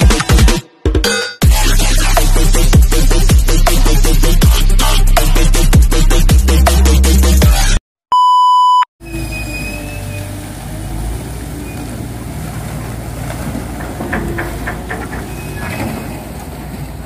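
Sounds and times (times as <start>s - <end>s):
crane machinery rumbling: 9.0s - 17.0s
metallic clanks: 11.8s - 17.0s.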